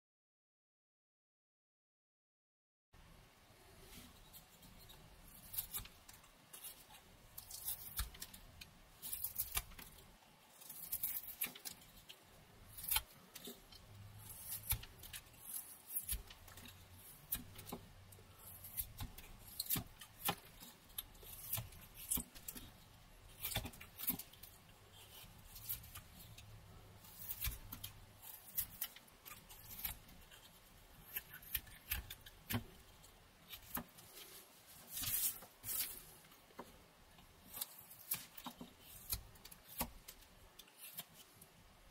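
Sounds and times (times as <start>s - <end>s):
knife whittling wood: 10.6s - 36.2s.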